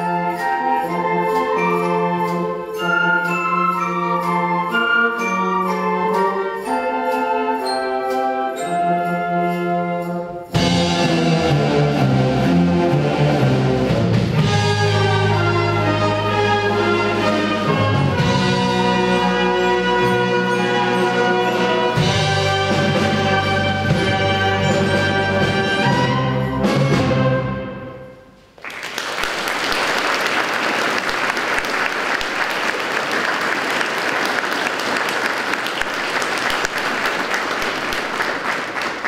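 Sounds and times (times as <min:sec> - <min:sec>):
wind band playing: 0:00.0 - 0:28.4
audience applause: 0:28.6 - 0:39.0.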